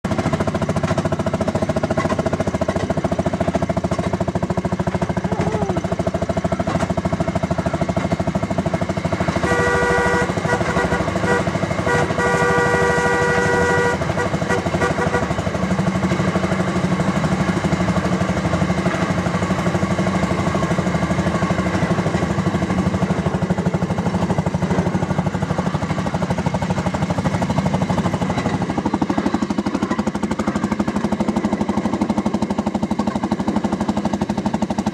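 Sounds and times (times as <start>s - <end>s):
two-stroke engine putt-putt: 0.0s - 34.9s
horn blasts: 9.3s - 15.7s.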